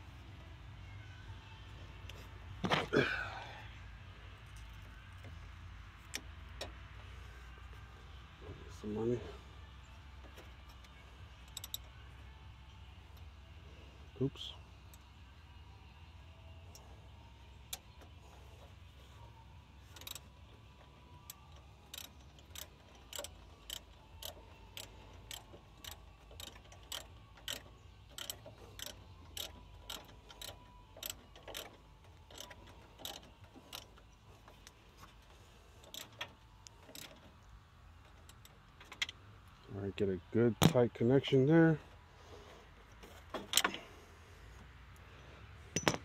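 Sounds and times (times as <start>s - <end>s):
ratchet wrench clicking: 11.4s - 11.9s, 19.9s - 20.3s, 21.6s - 34.0s, 35.8s - 37.2s.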